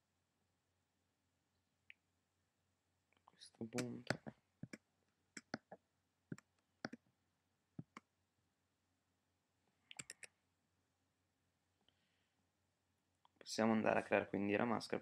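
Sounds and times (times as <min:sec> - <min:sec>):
computer mouse clicking: 0:09.9 - 0:10.3.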